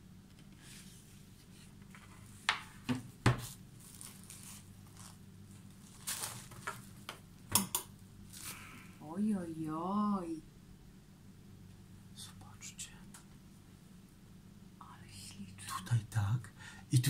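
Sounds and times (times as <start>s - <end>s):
wrapping rustling: 3.4s - 7.1s.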